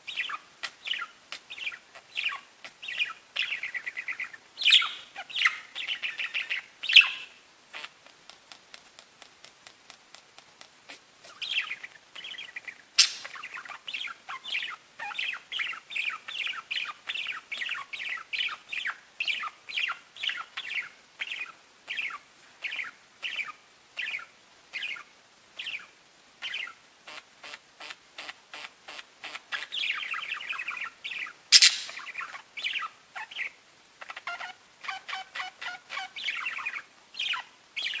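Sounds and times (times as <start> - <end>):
budgerigars chirping: 0.1 - 8.1, 10.9 - 38.0
sharp click: 31.6 - 32.0.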